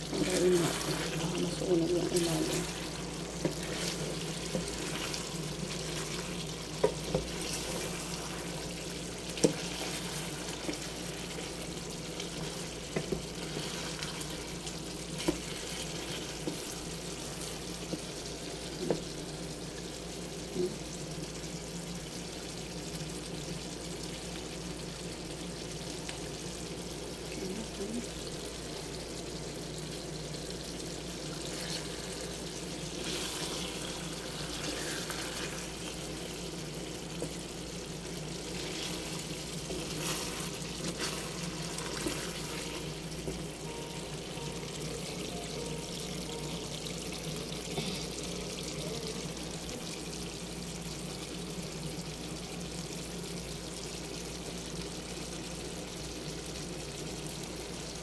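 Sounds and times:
sauce bubbling in a pan: 0:00.0 - 0:58.0
wooden spatula scraping pan: 0:00.1 - 0:08.7, 0:38.6 - 0:43.0.

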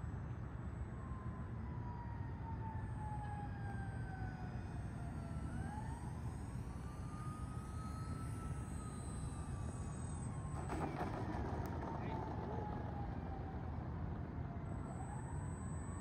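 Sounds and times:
model plane propeller whine: 0:00.0 - 0:16.0
steady low rumble: 0:10.6 - 0:15.1.

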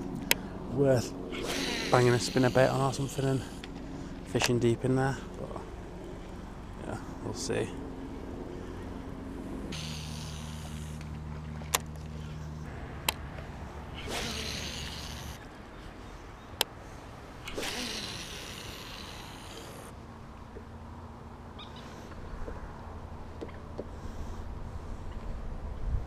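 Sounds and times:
boat motor humming: 0:00.0 - 0:24.3
rushes of hiss: 0:01.3 - 0:03.6, 0:09.7 - 0:11.0, 0:14.0 - 0:15.4, 0:17.4 - 0:19.9.

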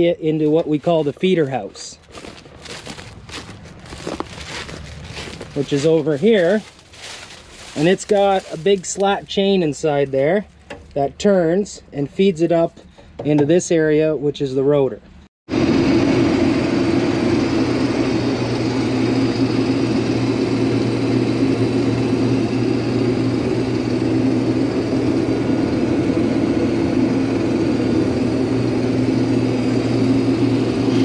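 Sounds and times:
combine harvester drone: 0:00.0 - 0:13.6, 0:15.0 - 0:31.0.

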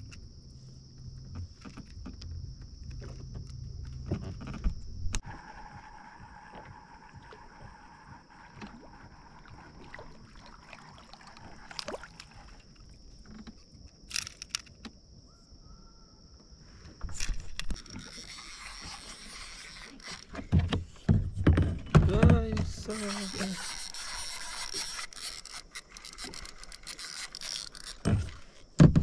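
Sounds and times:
water sloshing around a kayak: 0:00.2 - 0:15.3, 0:16.7 - 0:28.8
fishing reel and rod knocking: 0:01.2 - 0:15.0, 0:17.1 - 0:29.0.

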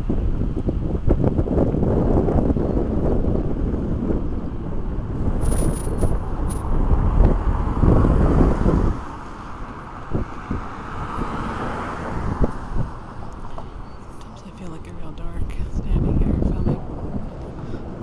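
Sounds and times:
tyre noise on road: 0:00.0 - 0:15.0
wind buffeting microphone: 0:00.0 - 0:18.0
car driving past: 0:06.8 - 0:14.8.

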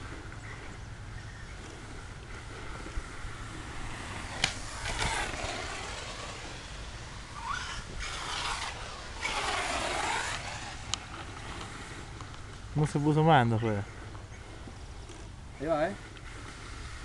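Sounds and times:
electric motor whine: 0:02.9 - 0:11.7.

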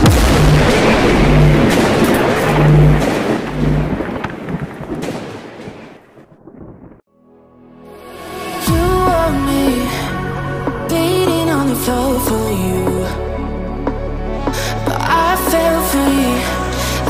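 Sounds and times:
low pulsing hum: 0:00.0 - 0:04.1
thunder-like rumble and crackle: 0:00.0 - 0:07.1.

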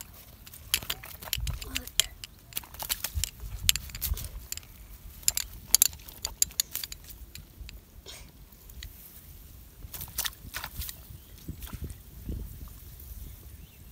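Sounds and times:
fish handling clicks and slaps: 0:00.0 - 0:04.6.

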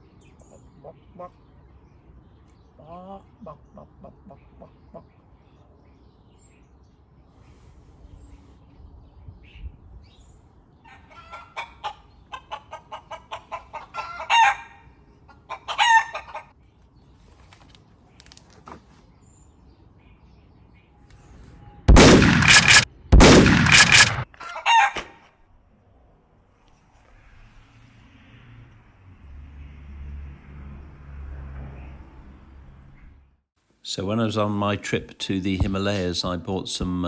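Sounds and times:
man imitating a chicken: 0:02.8 - 0:05.0.

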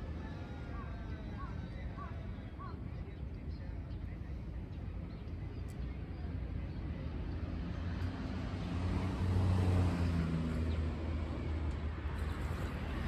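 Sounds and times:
light outdoor background noise: 0:00.0 - 0:13.0
passing vehicle engine hum: 0:07.0 - 0:13.0.

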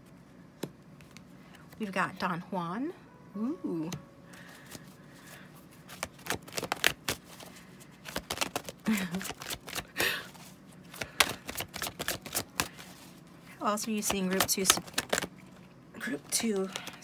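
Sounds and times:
cards being shuffled: 0:04.4 - 0:15.4, 0:16.1 - 0:17.0.

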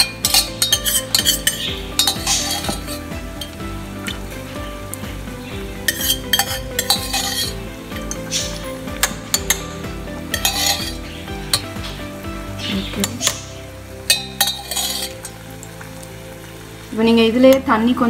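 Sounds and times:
ladle scraping metal pot: 0:00.0 - 0:04.3, 0:05.8 - 0:12.0, 0:14.1 - 0:15.4.

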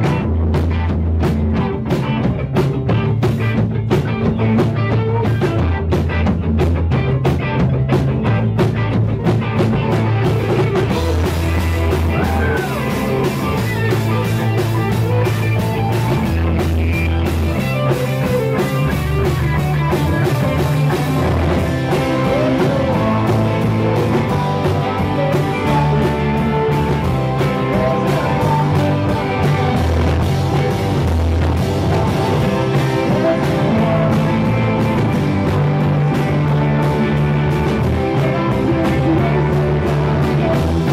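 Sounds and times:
rock band playing live: 0:00.0 - 0:40.9
man singing: 0:10.8 - 0:15.3, 0:20.4 - 0:31.2, 0:31.9 - 0:35.6, 0:36.4 - 0:40.9.

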